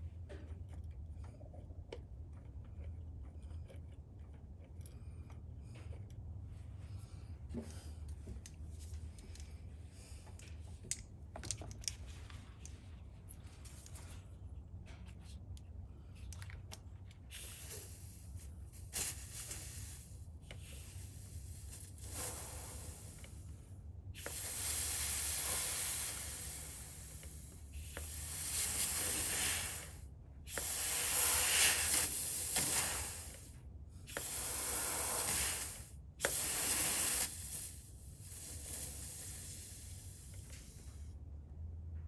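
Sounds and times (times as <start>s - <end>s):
compressed air hissing bursts: 17.3s - 41.0s.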